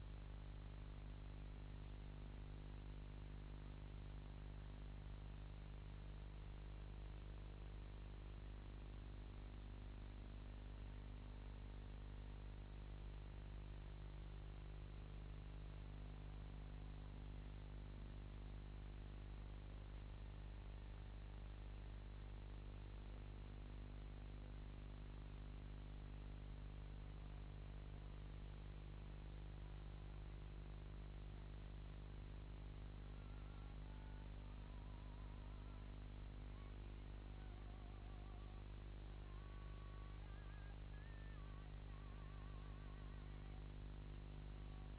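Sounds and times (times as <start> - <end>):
electrical hum and hiss: 0.0 - 44.9
faint high whistle tones: 39.3 - 43.6.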